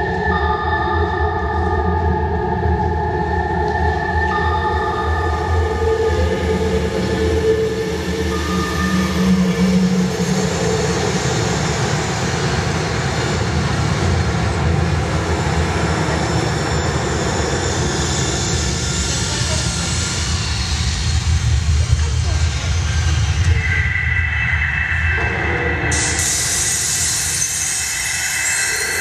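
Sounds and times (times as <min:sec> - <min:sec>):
loud steady rumble with hiss: 0:06.2 - 0:29.0.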